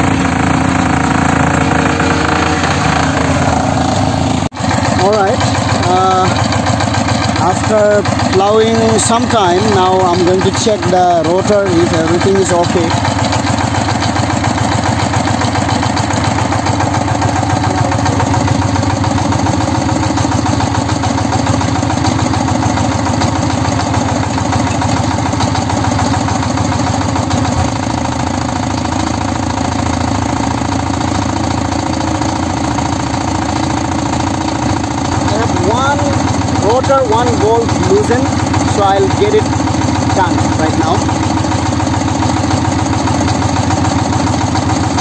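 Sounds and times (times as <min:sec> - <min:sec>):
diesel engine idling: 0:00.0 - 0:45.0.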